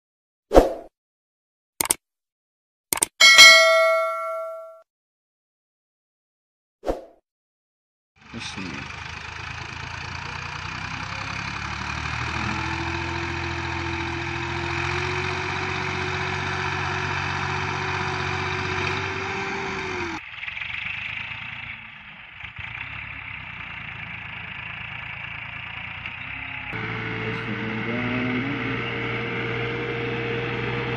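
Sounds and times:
tractor diesel engine under load: 8.2 - 30.9.

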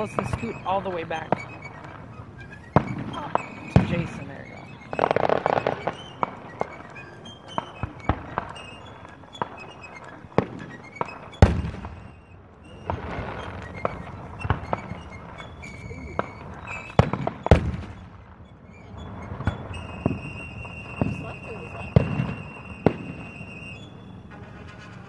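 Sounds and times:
fireworks bangs and pops: 0.0 - 25.0.

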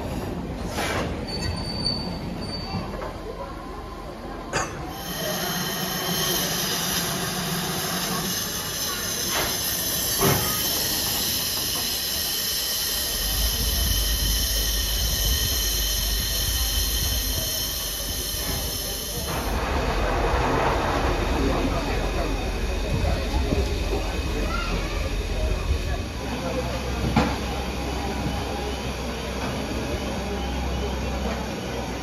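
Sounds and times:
high-pitched steam hiss: 4.9 - 19.6.

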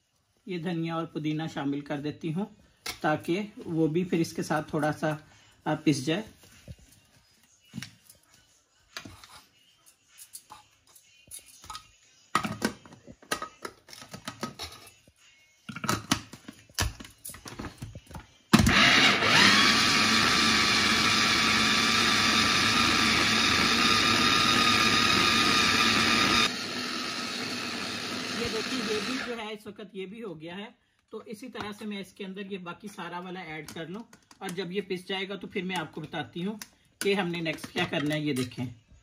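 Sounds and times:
electric mini chopper motor: 18.6 - 29.3.

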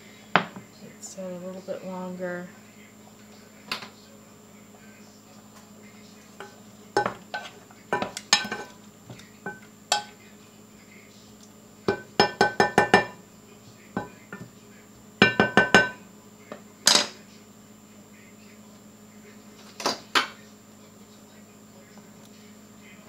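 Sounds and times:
utensil tapping on kitchenware: 6.4 - 10.1, 11.9 - 13.2, 15.2 - 16.0
kitchenware clatter: 6.4 - 10.2, 11.9 - 13.2, 15.2 - 16.0, 16.8 - 17.2.

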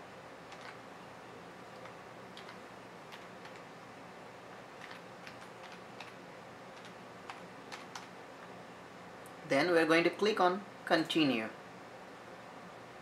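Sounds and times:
faint steady hum: 0.0 - 13.0
keyboard keys clicking: 0.5 - 0.8, 1.8 - 3.6, 4.8 - 6.2, 6.8 - 8.1.

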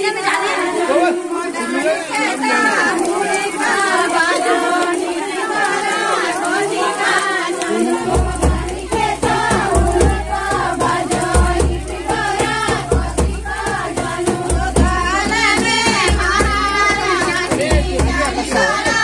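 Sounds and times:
song with singing: 0.0 - 19.0
steady low beat: 8.1 - 18.9.

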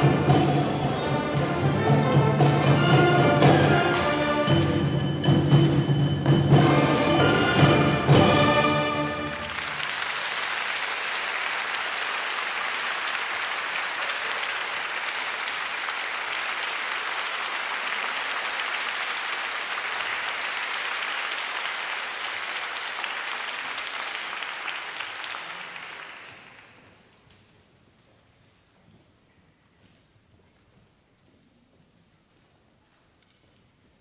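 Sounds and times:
audience applauding: 9.0 - 27.0.

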